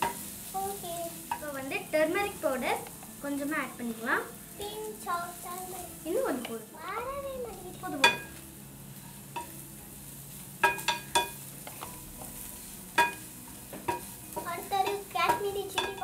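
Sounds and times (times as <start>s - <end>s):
faint oil sizzle: 0.0s - 16.0s
metal spoon clanking on pan: 8.0s - 8.4s, 9.3s - 9.6s, 10.6s - 12.0s, 13.0s - 16.0s.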